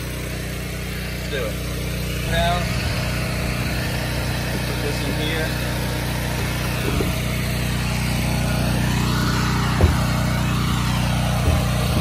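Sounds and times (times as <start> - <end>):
pressure washer engine running: 0.0 - 12.0
short knock: 9.8 - 10.2.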